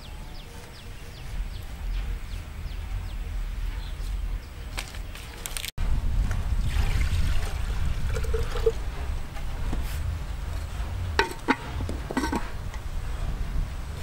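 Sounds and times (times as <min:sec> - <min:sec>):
steady low rumble: 0:00.0 - 0:05.2, 0:05.8 - 0:14.0
liquid pouring into a pot: 0:06.6 - 0:08.8
clay lid clicking on pot: 0:11.2 - 0:12.5.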